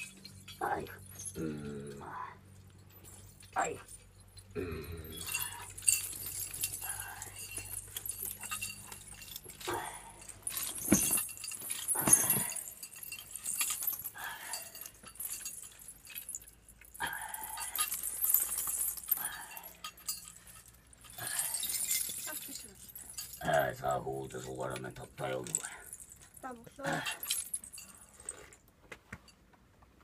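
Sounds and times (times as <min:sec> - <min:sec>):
metal pendants and bells jangling: 0:00.0 - 0:28.7
short vocal sounds: 0:00.6 - 0:02.4, 0:04.5 - 0:05.6.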